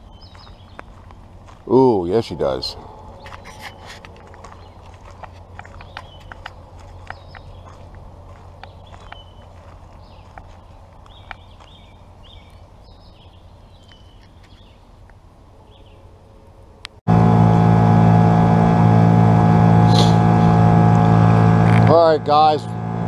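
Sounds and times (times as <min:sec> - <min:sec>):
small birds chirping faintly: 0:00.0 - 0:17.0
outboard motor running: 0:17.1 - 0:23.0.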